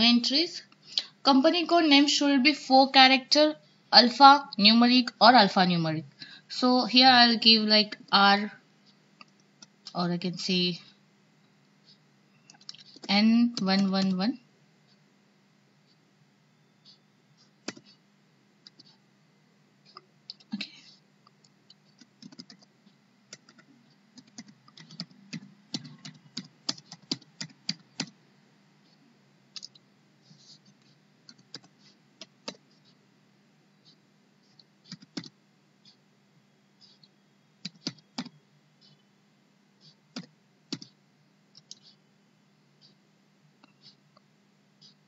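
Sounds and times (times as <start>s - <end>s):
typing on keyboard: 12.5s - 14.2s, 17.4s - 18.0s, 18.6s - 19.0s, 21.4s - 22.7s, 23.3s - 28.2s, 30.8s - 32.6s, 34.5s - 35.4s, 37.6s - 39.0s, 40.1s - 41.0s.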